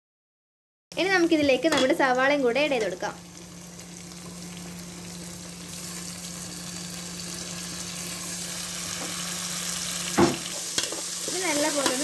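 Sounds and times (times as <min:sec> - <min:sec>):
onions sizzling in hot oil: 0:01.0 - 0:12.0.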